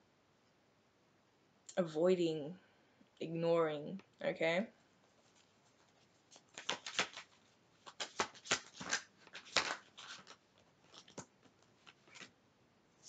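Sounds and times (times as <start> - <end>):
cards being shuffled: 5.0 - 12.3.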